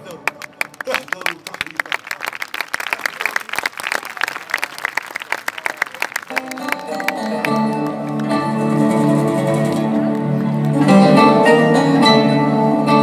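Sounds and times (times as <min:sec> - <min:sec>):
audience clapping: 0:00.0 - 0:11.0
music with held notes: 0:06.3 - 0:13.0.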